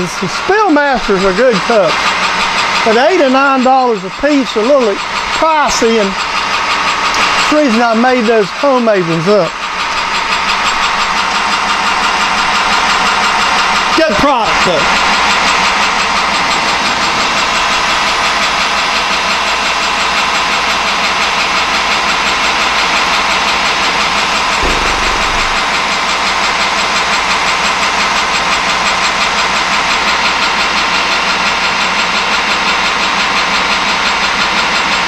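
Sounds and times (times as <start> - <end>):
metal lathe cutting steel: 0.2 - 35.0
low bump: 24.4 - 26.8.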